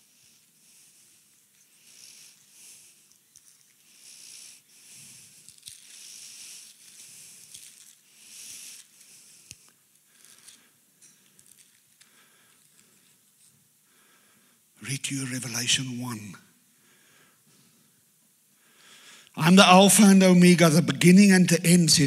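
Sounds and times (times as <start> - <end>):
thin pages rustling: 5.4 - 9.1.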